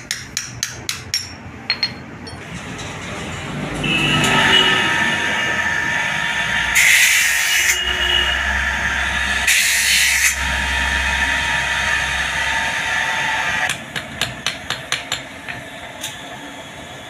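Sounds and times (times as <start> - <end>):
hammer striking metal on anvil: 0.0 - 2.4, 13.7 - 15.6
bench grinder grinding metal: 4.3 - 13.7.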